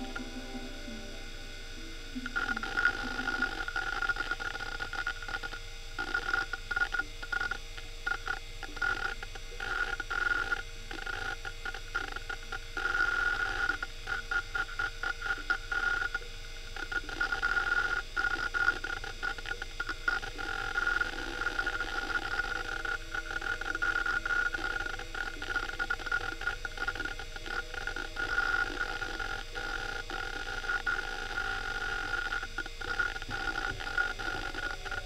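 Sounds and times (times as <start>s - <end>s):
hard drive whine: 0.0s - 35.0s
hard drive head chattering: 16.8s - 35.0s.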